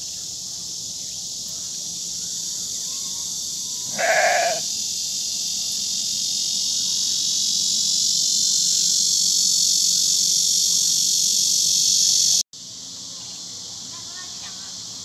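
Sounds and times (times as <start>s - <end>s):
insects chorus: 0.0s - 15.0s
goat bleating: 3.9s - 4.6s.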